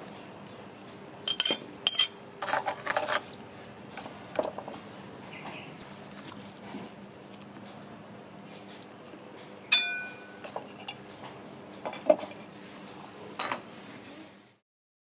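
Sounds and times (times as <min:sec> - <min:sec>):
clay lid clinking against pot: 0:09.7 - 0:11.0.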